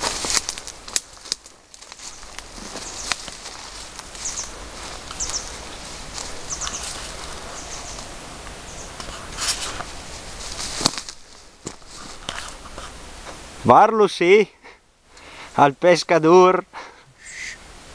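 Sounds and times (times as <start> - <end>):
outdoor hiss: 0.0 - 17.9
footsteps scuffing on concrete: 1.2 - 7.9
bird chirps: 4.2 - 9.0
knocks and rustles: 9.0 - 13.4.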